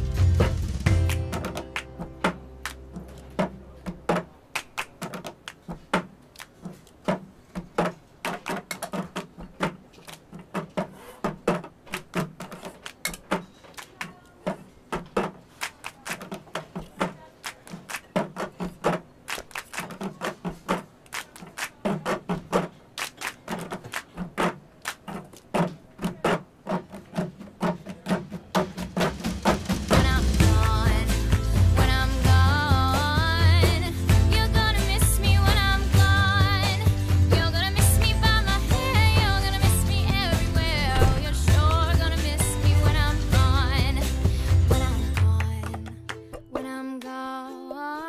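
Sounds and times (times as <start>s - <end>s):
hand claps: 0.4s - 27.0s, 45.0s - 47.1s
plastic cups knocking on tables: 3.0s - 29.6s.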